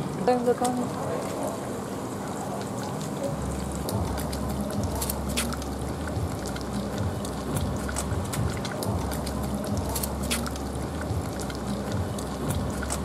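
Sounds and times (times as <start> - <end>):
low hum: 3.2 - 13.0.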